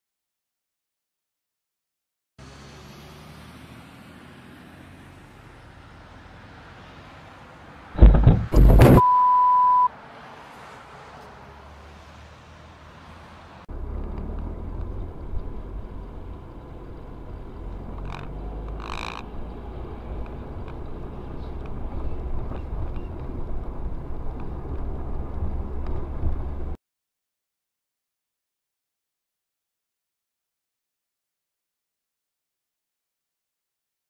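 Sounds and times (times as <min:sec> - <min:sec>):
road and engine rumble in car: 0:02.4 - 0:09.9, 0:11.2 - 0:26.8.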